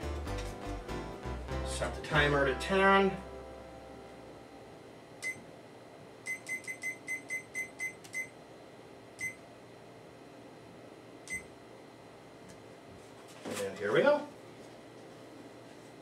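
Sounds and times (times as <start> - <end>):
kitchen timer beeping: 6.3 - 8.3.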